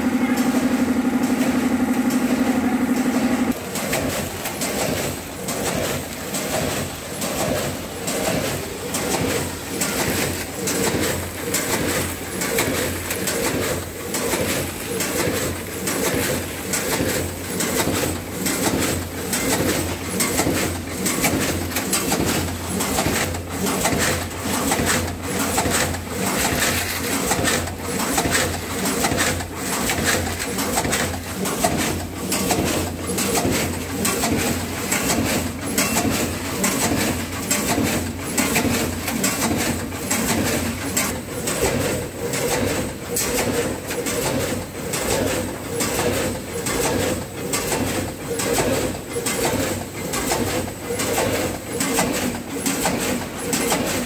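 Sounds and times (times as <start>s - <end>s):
machine hum: 0.0s - 43.0s
packing machine clacking: 0.0s - 54.0s.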